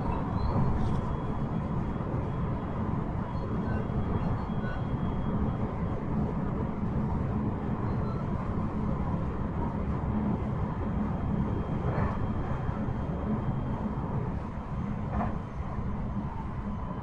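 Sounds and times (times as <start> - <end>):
train wheels rumbling on rail: 0.0 - 17.0
train clatter: 14.9 - 15.9.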